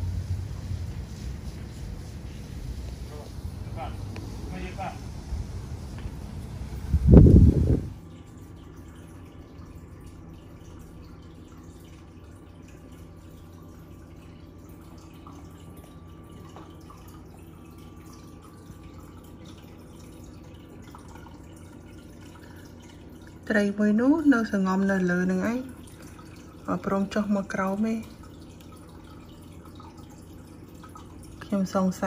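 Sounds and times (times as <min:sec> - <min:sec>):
aquarium filter humming: 0:00.0 - 0:32.0
water trickling and dripping: 0:00.0 - 0:32.0.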